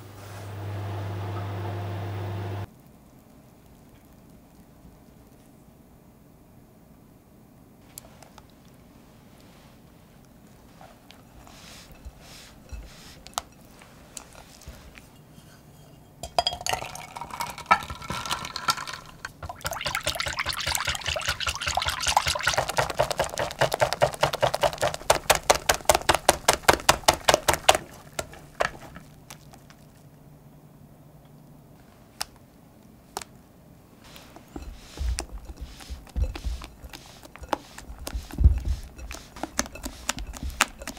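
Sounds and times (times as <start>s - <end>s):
light scraping and stirring: 7.8s - 30.2s, 34.0s - 40.9s
whisk clinking against glass bowl: 11.2s - 25.0s, 34.2s - 40.9s.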